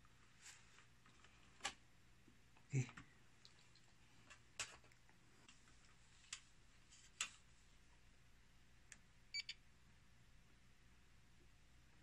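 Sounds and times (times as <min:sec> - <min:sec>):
faint clicks and taps: 0:00.8 - 0:08.0.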